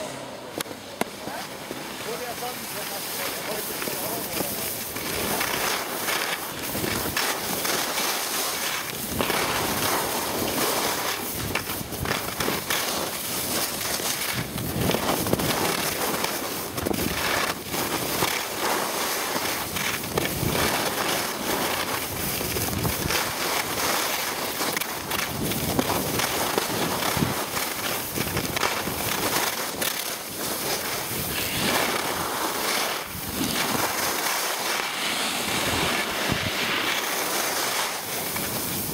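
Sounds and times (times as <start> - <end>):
skis scraping over snow: 0.0 - 38.9
wind rushing over microphone: 30.8 - 38.9.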